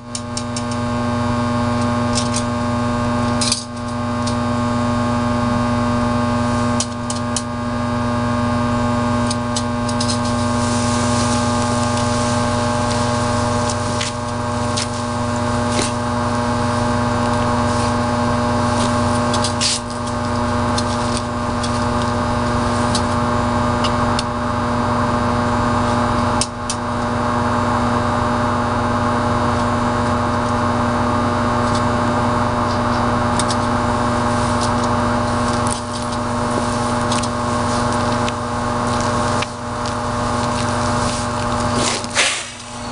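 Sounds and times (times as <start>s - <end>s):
sharp electrical crackles: 0.0s - 24.7s, 29.4s - 42.9s
electrical hum: 0.0s - 42.9s.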